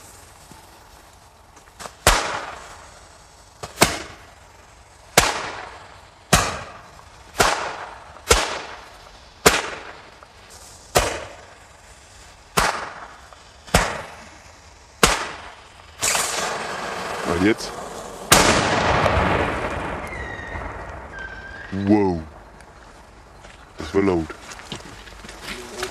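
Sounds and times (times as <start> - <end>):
firecracker hiss: 0.0 - 25.9
firecracker bangs: 1.8 - 22.4.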